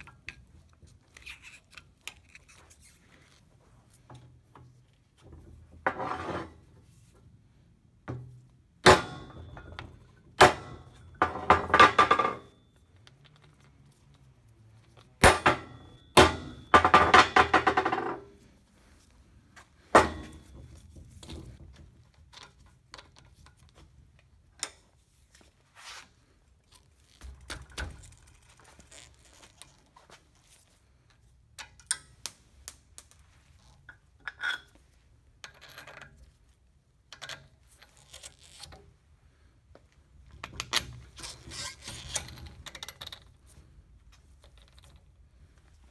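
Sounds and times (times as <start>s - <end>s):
metal clanks and knocks: 19.9s - 21.9s.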